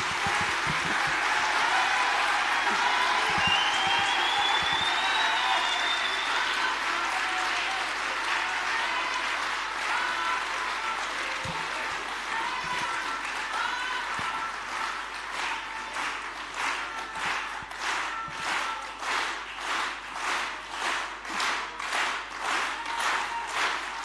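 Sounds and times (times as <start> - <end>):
crowd applauding: 0.0 - 24.0.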